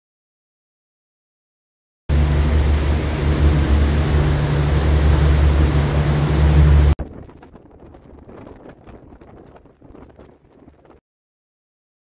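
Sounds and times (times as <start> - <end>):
boat engine drone: 2.1 - 8.5
wind and water rushing: 2.1 - 10.9.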